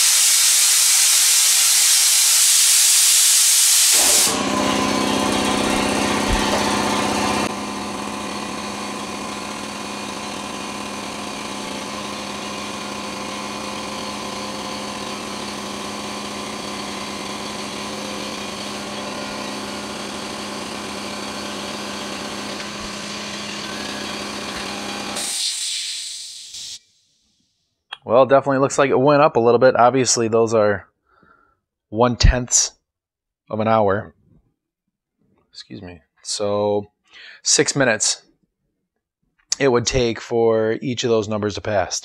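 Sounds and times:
air hiss: 0.0s - 4.4s, 25.2s - 26.9s
air compressor running: 0.0s - 26.9s.

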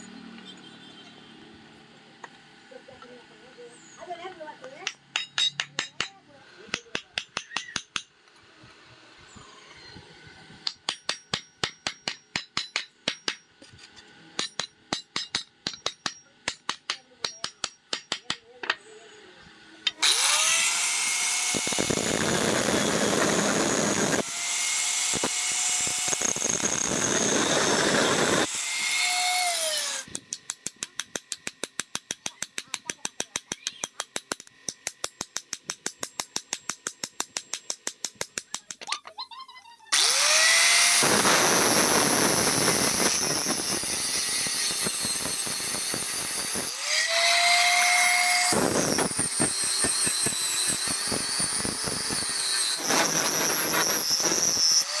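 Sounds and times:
angle grinder cutting: 15.8s - 35.3s, 39.9s - 55.0s.

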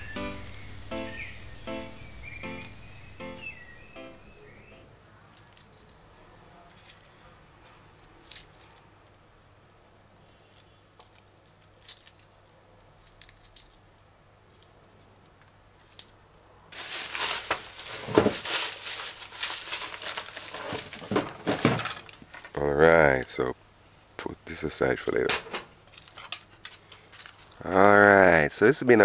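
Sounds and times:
dry onion skins crinkling: 3.7s - 9.2s, 9.8s - 22.8s, 24.5s - 28.0s.

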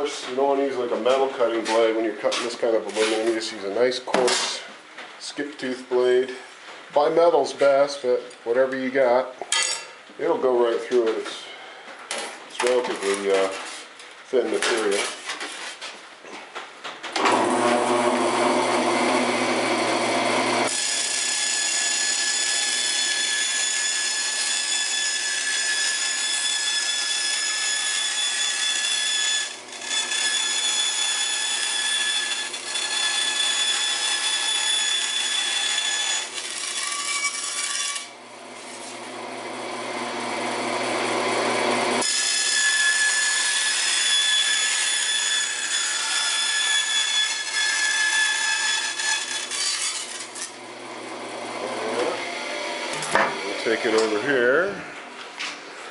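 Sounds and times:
bandsaw cutting metal sheet: 17.2s - 54.4s.

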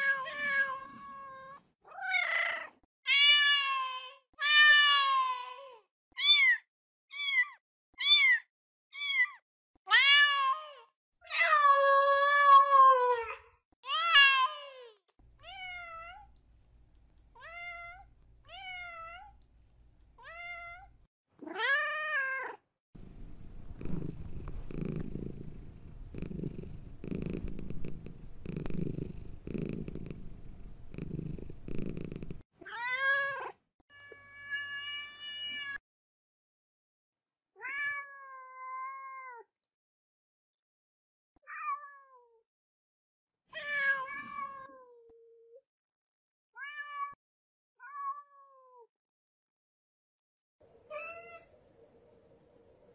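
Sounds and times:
cat purring: 23.0s - 32.4s.

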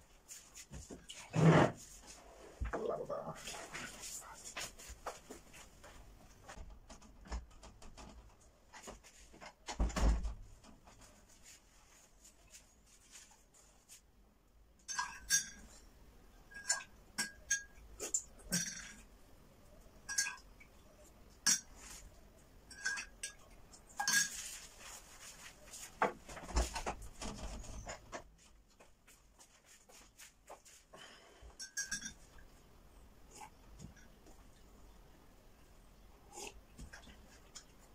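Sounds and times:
spoon clinking against mug: 31.6s - 32.2s.

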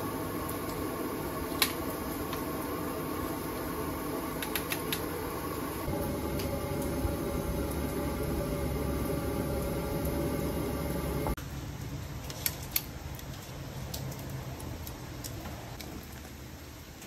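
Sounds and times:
gas flame roaring: 0.0s - 11.4s
water boiling in a pot: 0.0s - 11.4s.

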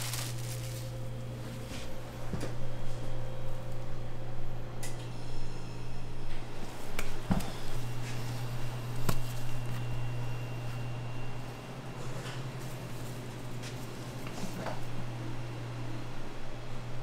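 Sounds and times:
dough dropping out: 0.0s - 1.0s
low hum of kitchen equipment: 0.0s - 17.0s.

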